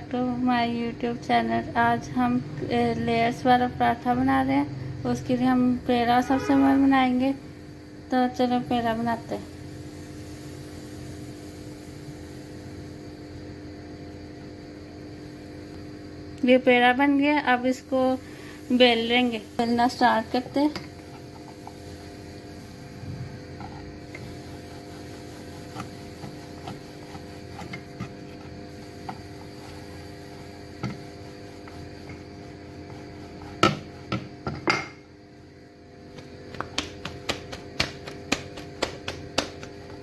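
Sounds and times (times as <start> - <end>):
steady hum: 0.0 - 40.0
dough being rolled out: 18.8 - 34.8.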